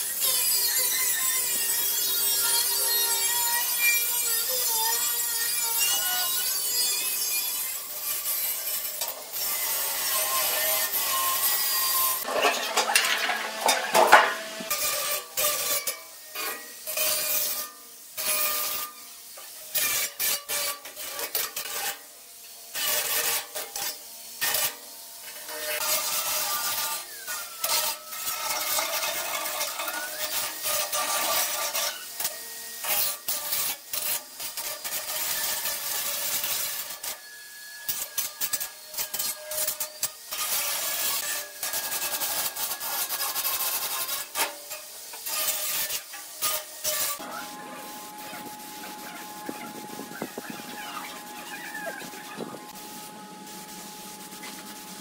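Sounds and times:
angle grinder grinding metal: 0:00.0 - 0:55.0.

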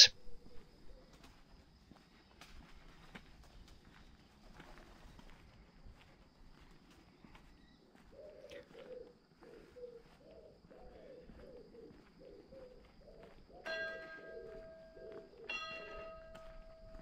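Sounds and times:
pigeon cooing: 0:00.0 - 0:01.1, 0:08.0 - 0:15.7
bell striking: 0:13.7 - 0:14.8, 0:15.5 - 0:17.0.

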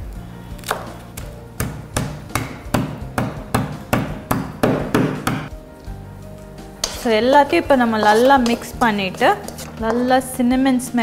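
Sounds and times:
soft background music: 0:00.0 - 0:11.0
pestle pounding on wooden board: 0:01.6 - 0:05.5.

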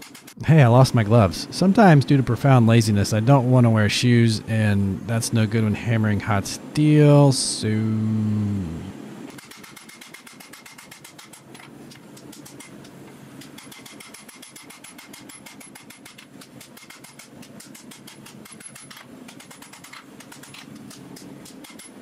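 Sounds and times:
power hammer striking steel: 0:09.3 - 0:12.8, 0:13.4 - 0:22.0.

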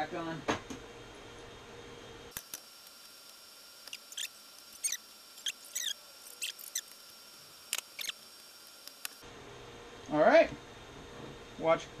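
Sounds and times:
screwdriver squeaks and clicks: 0:03.8 - 0:07.0, 0:07.7 - 0:08.3.

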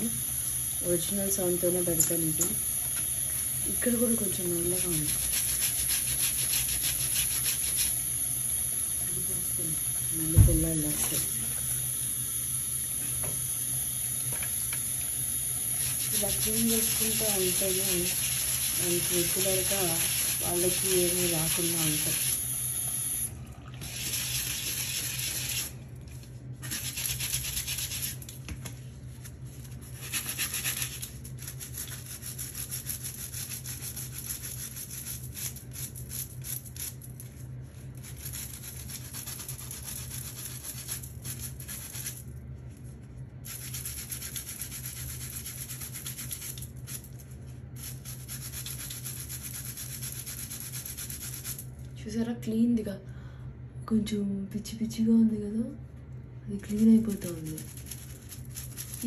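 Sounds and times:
steady low hum: 0:00.0 - 0:59.0
scrub brush scrubbing plastic: 0:03.7 - 0:08.0, 0:15.6 - 0:22.4, 0:23.8 - 0:28.4, 0:29.0 - 0:47.2, 0:47.8 - 0:51.6, 0:56.6 - 0:59.0
tap running: 0:08.6 - 0:11.9, 0:12.9 - 0:17.7.

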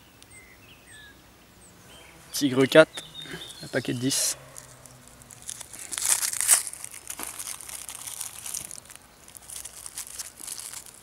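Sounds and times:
firecracker wrapper crinkling: 0:04.4 - 0:11.0.

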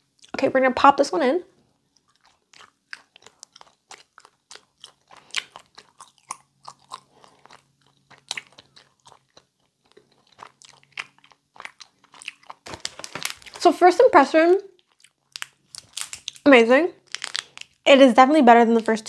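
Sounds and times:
chewing mouth clicks and smacks: 0:01.9 - 0:12.9, 0:14.7 - 0:16.4.

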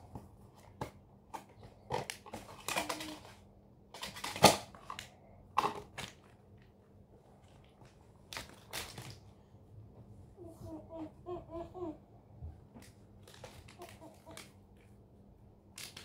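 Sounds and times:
toy packaging crinkling and tearing: 0:02.2 - 0:03.4, 0:08.3 - 0:09.2, 0:13.2 - 0:14.6.

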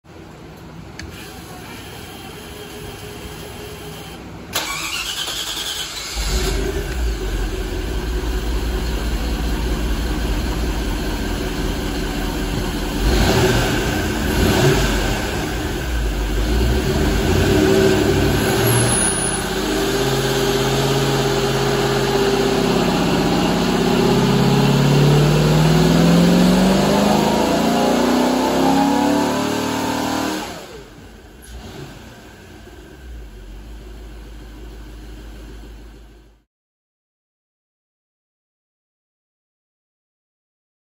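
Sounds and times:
engine starter cranking: 0:04.5 - 0:07.0
engine running and revving: 0:06.2 - 0:33.5.

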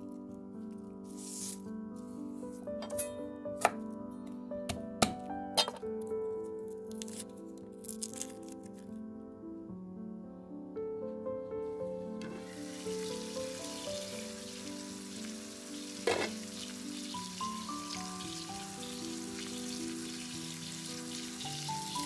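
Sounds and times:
potatoes and onions frying: 0:12.2 - 0:22.0.

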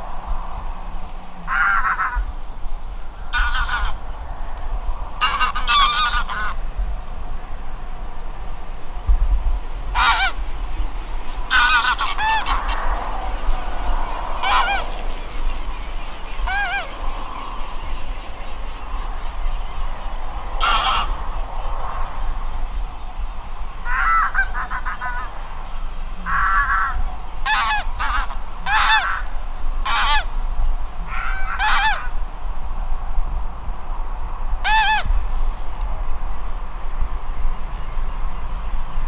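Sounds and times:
low rumble: 0:00.0 - 0:27.2
geese honking: 0:01.5 - 0:02.3, 0:03.2 - 0:04.1, 0:05.2 - 0:06.6, 0:09.9 - 0:10.5, 0:11.3 - 0:19.7, 0:20.6 - 0:21.2, 0:23.8 - 0:25.4, 0:26.2 - 0:30.3, 0:31.1 - 0:32.2, 0:34.6 - 0:35.1.

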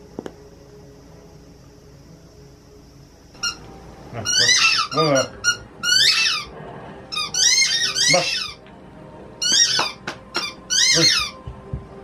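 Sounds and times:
squeaky toy squeaking: 0:04.2 - 0:06.5, 0:07.1 - 0:08.6, 0:09.4 - 0:11.4.

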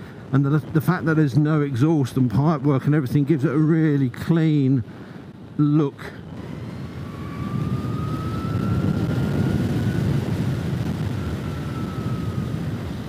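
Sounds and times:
wind and road noise: 0:00.0 - 0:13.0
electric motor whine: 0:06.3 - 0:13.0.

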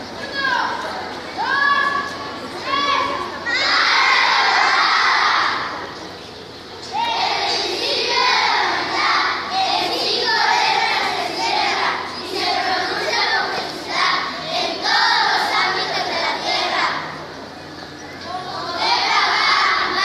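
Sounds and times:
children reciting in unison: 0:02.7 - 0:05.9, 0:06.8 - 0:17.6, 0:18.2 - 0:20.0.

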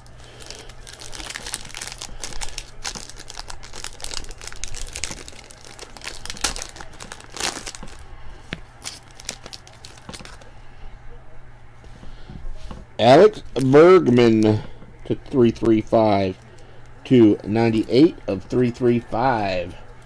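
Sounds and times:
foil wrapper crinkling and tearing: 0:00.0 - 0:08.0, 0:08.6 - 0:10.5.

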